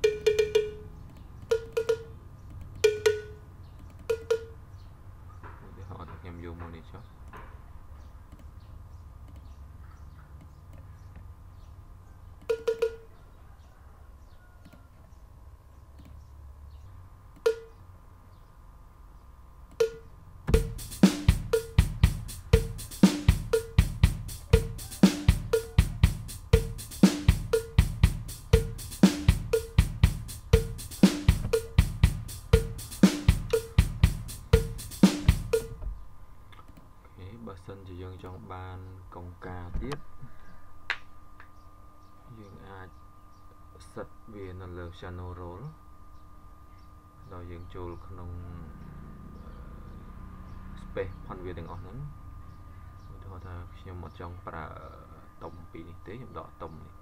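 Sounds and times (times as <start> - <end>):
cowbell strikes: 0.0 - 0.9, 1.5 - 2.2, 2.8 - 3.4, 4.1 - 4.6, 12.5 - 13.2, 17.5 - 17.8, 19.8 - 20.8
programmed drum pattern: 0.0 - 4.6, 12.4 - 13.1, 17.4 - 17.8, 19.8 - 35.8.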